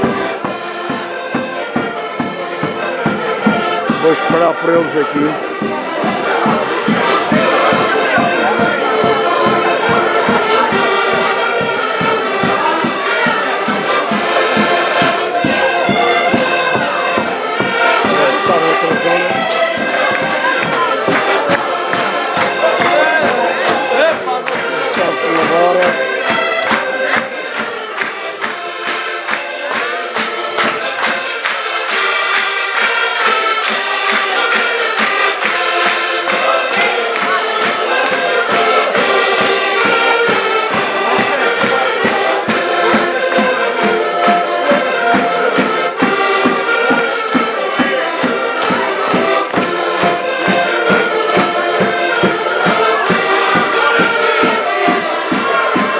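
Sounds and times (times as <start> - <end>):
accordions playing: 0.0 - 55.9.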